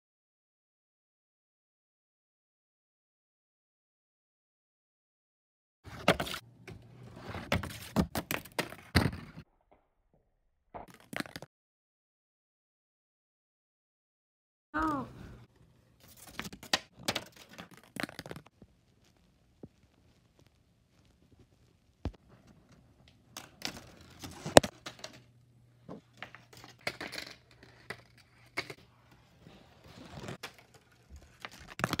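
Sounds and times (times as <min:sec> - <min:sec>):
marble clicking down paper chutes: 0:16.1 - 0:18.5, 0:23.3 - 0:25.4, 0:26.0 - 0:28.8.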